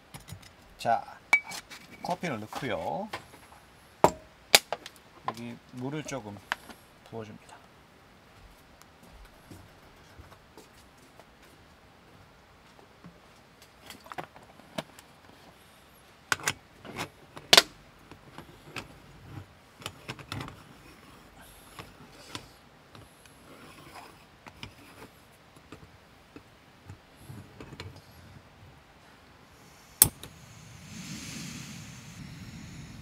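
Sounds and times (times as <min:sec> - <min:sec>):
clicking and scraping of screwing: 0:18.1 - 0:28.0.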